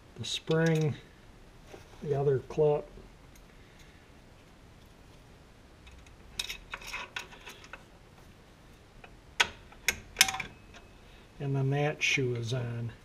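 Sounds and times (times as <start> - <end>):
metal clicks and clinks: 0.5 - 1.0, 5.9 - 7.8, 9.4 - 10.9.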